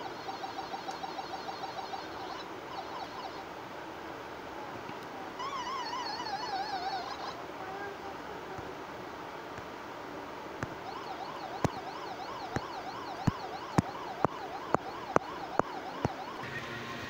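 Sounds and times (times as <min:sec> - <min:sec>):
sharp clicks: 0:00.3 - 0:02.5, 0:10.6 - 0:16.4
siren-like warbling tone: 0:05.4 - 0:07.4, 0:10.8 - 0:17.0.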